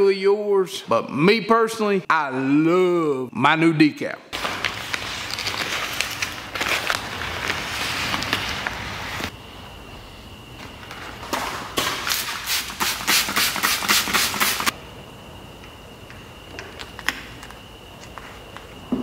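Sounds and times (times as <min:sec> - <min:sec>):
spray bottle spraying: 0:12.1 - 0:14.7.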